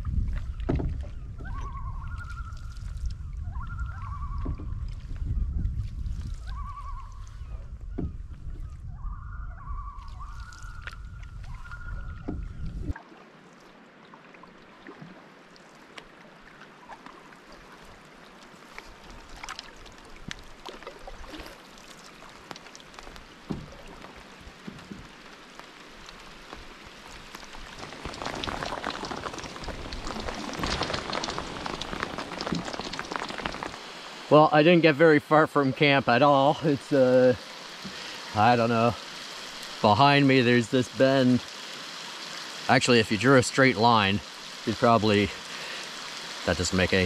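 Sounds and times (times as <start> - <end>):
low wind rumble: 0.0 - 13.0
rain pattering on water: 10.0 - 47.0.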